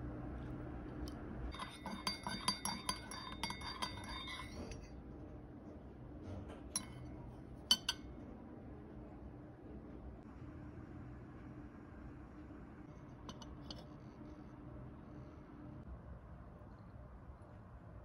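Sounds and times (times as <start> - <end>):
spoon clinking in teacup: 1.5 - 4.9, 6.8 - 8.1, 13.3 - 13.8
spoon clinks on saucer: 1.5 - 4.9, 6.8 - 7.1, 7.7 - 8.1, 13.3 - 13.9.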